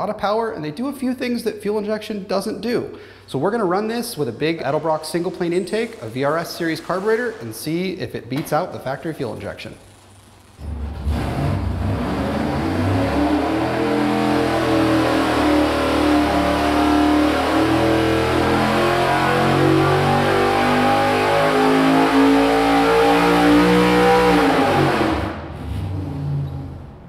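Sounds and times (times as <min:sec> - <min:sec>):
engine revving at full throttle: 0:10.6 - 0:25.5.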